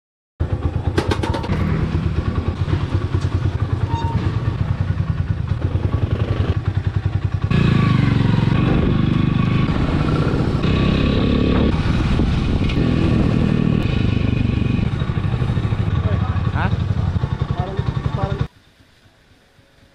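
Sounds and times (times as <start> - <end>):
motorcycle engine running: 0.4 - 18.5.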